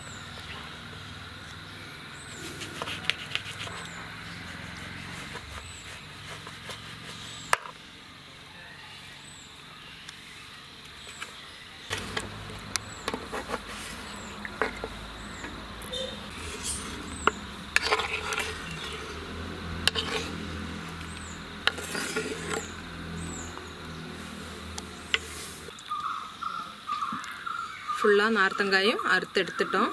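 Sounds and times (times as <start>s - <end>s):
faint high chirp: 15.3s - 17.4s.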